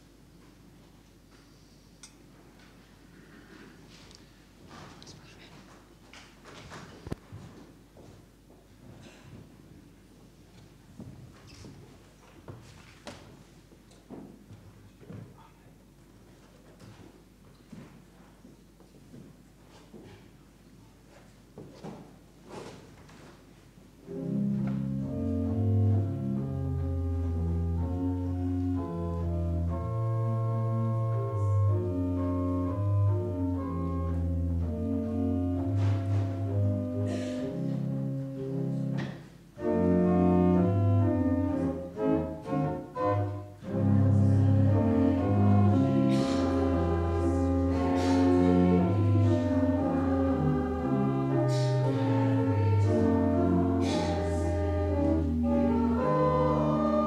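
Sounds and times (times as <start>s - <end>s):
organ music: 24.0s - 57.0s.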